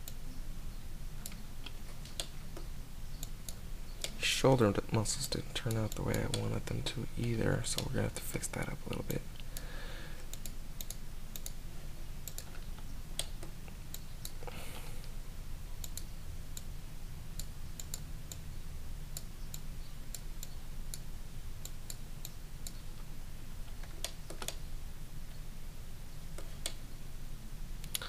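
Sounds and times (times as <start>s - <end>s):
steady low hum: 0.0s - 28.0s
computer mouse and keyboard clicks: 12.2s - 14.4s, 23.7s - 24.6s.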